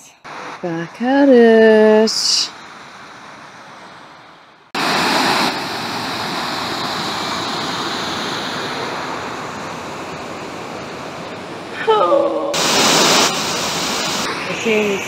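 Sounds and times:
water rushing through lock: 4.7s - 15.0s.

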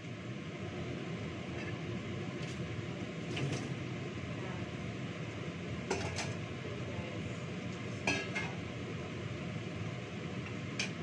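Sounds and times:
metal bowls and pans clinking: 5.9s - 6.4s, 8.0s - 8.6s.

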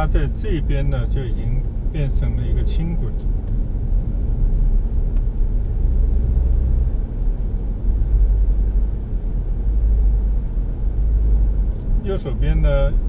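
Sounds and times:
car engine and tyre noise: 0.0s - 13.0s.

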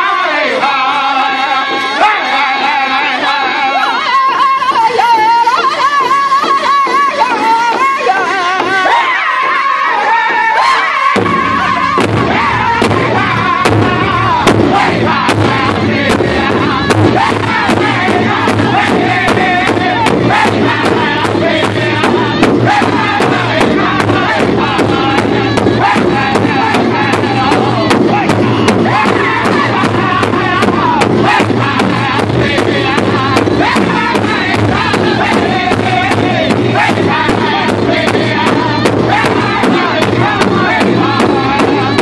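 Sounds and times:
men singing in high voices: 0.0s - 42.0s
large hide drum beating: 11.0s - 42.0s.

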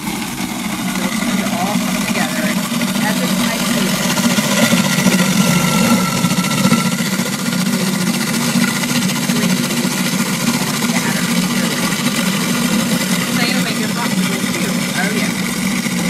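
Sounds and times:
food processor motor humming: 0.0s - 16.0s.

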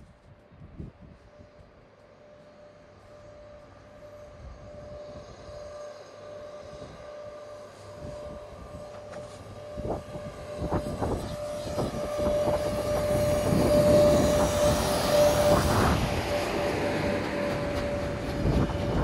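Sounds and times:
locomotive hum: 0.0s - 19.0s
train wheel clacks: 11.8s - 19.0s.

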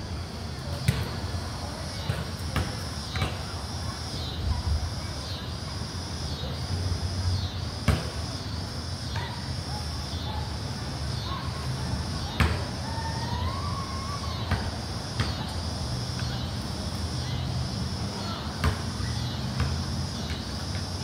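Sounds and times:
outdoor background hiss: 0.0s - 21.0s
basketball bouncing on concrete: 2.0s - 3.5s
faint high-pitched calls: 11.2s - 15.5s.

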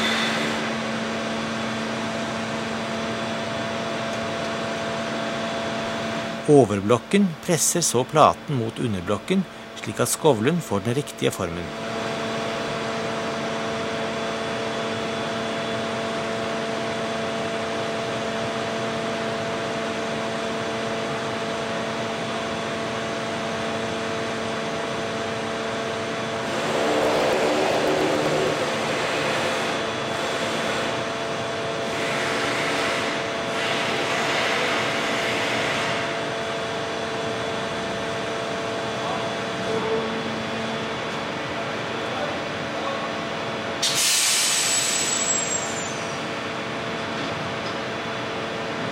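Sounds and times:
hydraulic press humming: 26.4s - 30.3s.

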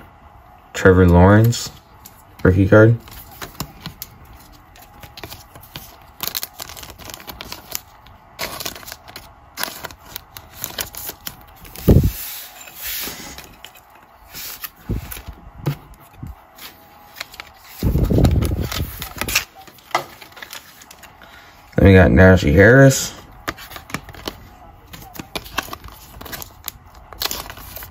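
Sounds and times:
cards clicking and rustling: 2.9s - 12.2s, 16.6s - 21.2s, 23.1s - 27.9s.

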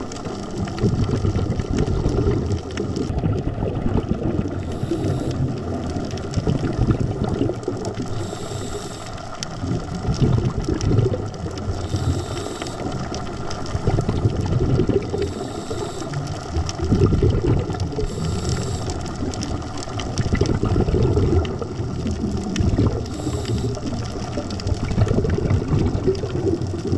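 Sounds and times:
crackle of fine clicks: 0.0s - 26.9s
exhaled bubbles: 0.0s - 26.9s
regulator inhalation hiss: 4.6s - 5.5s, 8.1s - 9.4s, 11.8s - 13.0s, 15.1s - 16.3s, 18.0s - 19.2s, 23.1s - 24.0s.

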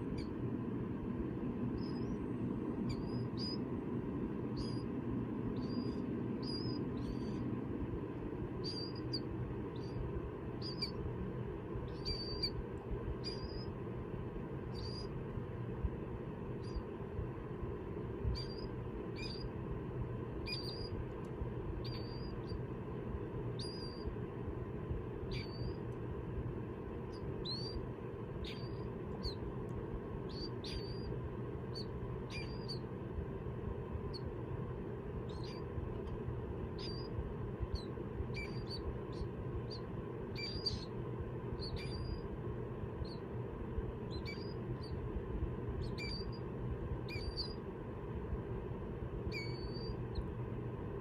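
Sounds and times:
low background noise: 0.0s - 51.0s
chicks peeping: 1.4s - 13.8s, 14.6s - 15.2s, 18.2s - 19.6s, 20.4s - 22.7s, 23.6s - 24.2s, 25.2s - 26.0s, 27.1s - 29.6s, 30.2s - 32.9s, 35.2s - 42.3s, 44.0s - 45.1s, 45.7s - 47.7s, 49.3s - 50.3s.

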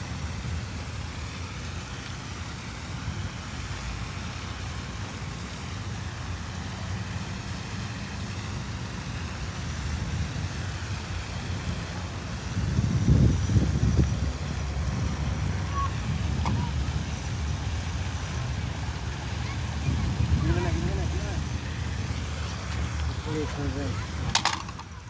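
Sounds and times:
outdoor rumble and hiss: 0.0s - 25.0s
wind buffeting microphone: 9.1s - 24.8s.

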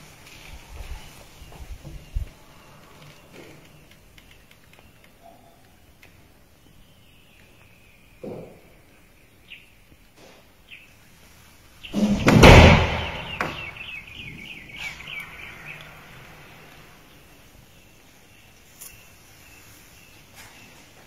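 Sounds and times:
outdoor bush ambience: 0.0s - 21.0s
loud rumbling burst: 12.0s - 13.9s.

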